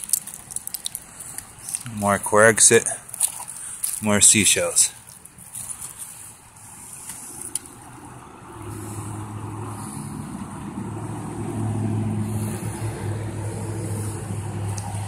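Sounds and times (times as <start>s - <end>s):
engine humming: 4.8s - 15.0s.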